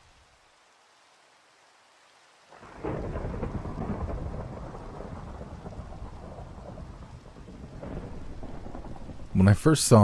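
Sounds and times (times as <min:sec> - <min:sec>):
rain falling: 0:00.0 - 0:10.0
thunder rolling: 0:02.6 - 0:10.0.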